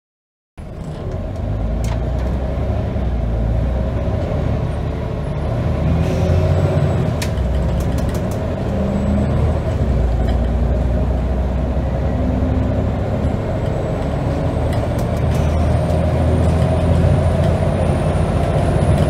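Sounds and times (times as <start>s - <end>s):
bus diesel engine pulling hard: 0.6s - 19.0s.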